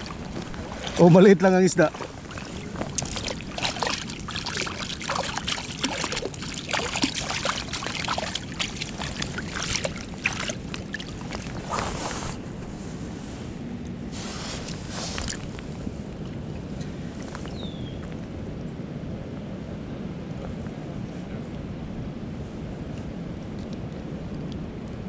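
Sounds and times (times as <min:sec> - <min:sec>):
creek water rushing: 0:00.0 - 0:12.4.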